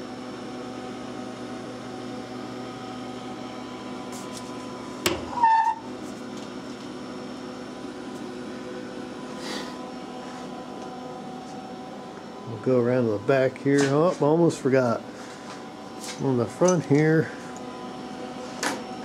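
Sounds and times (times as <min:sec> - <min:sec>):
machine hum: 0:00.0 - 0:19.0
high-pitched squeak: 0:05.3 - 0:05.9.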